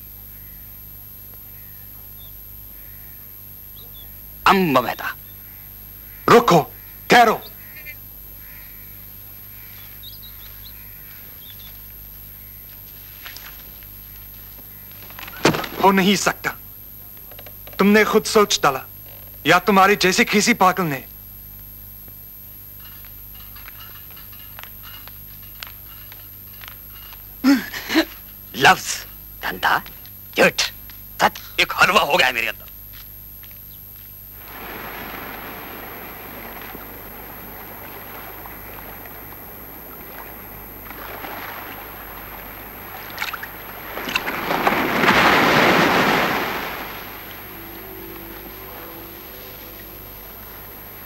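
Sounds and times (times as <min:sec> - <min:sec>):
steady low hum: 0:00.0 - 0:51.0
shallow water washing over sand: 0:34.3 - 0:51.0
sharp water splashes: 0:34.4 - 0:49.2
surge of rushing water: 0:34.4 - 0:51.0.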